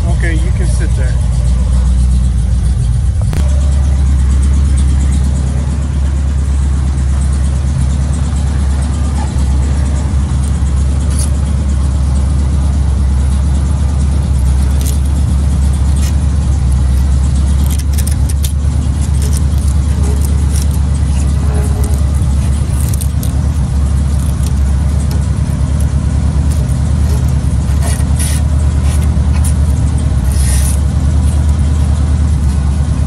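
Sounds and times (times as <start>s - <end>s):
car engine idling: 0.0s - 33.0s
plastic scraper scraping glass: 14.4s - 15.2s, 15.8s - 31.6s.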